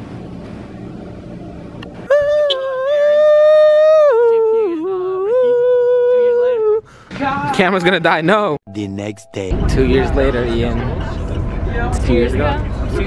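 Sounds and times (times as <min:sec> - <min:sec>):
restaurant room noise: 0:00.0 - 0:06.0, 0:06.6 - 0:13.0
person singing high notes: 0:02.1 - 0:06.8.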